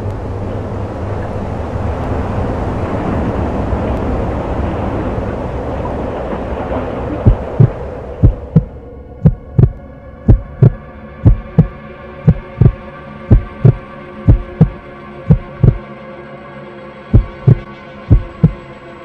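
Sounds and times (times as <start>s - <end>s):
rushing road noise: 0.0s - 15.8s, 17.2s - 18.6s
steady low hum: 0.0s - 15.9s, 17.2s - 18.7s
slow heartbeat thumps: 7.2s - 15.8s, 17.2s - 18.6s.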